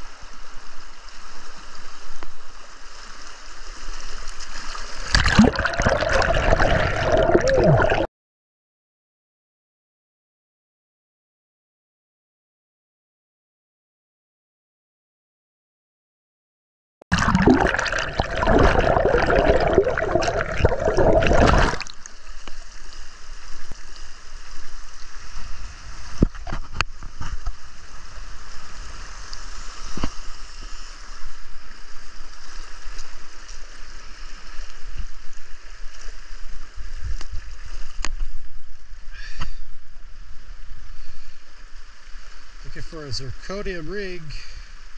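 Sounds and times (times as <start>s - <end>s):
underwater gurgling river rush: 1.6s - 8.1s, 17.1s - 43.3s
river current rushing: 5.0s - 8.1s, 17.2s - 26.2s.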